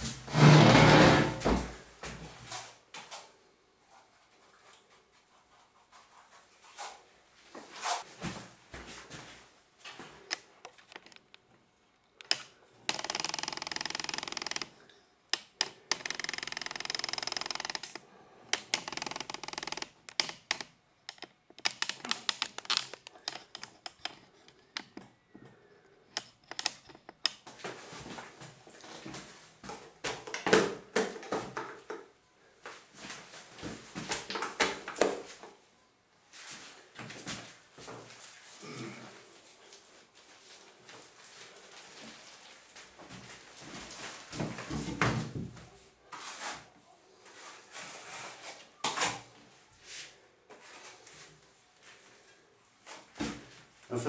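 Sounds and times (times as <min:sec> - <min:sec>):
roller sticky clicks and crackles: 0:10.3 - 0:11.6, 0:18.6 - 0:25.1.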